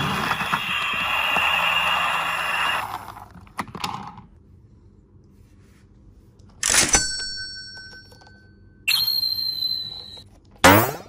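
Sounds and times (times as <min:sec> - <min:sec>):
thin ringing tones: 0:06.9 - 0:10.3
loud toy burst: 0:10.6 - 0:11.0.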